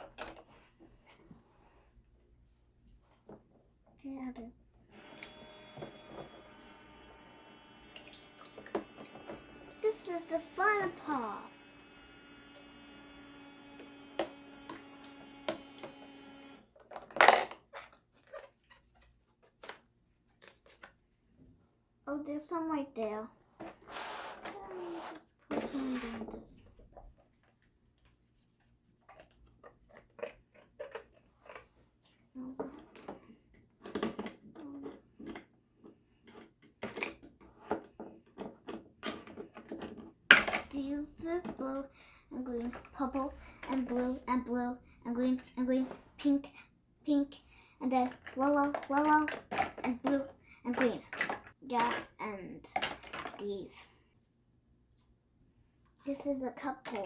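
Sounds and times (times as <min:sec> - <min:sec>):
toy pump faucet humming: 0:04.9 - 0:16.6
plastic toy dishes clattering: 0:16.8 - 0:18.6, 0:48.0 - 0:53.6
plastic dishes clattering: 0:16.8 - 0:21.0, 0:32.8 - 0:40.8, 0:48.0 - 0:53.5.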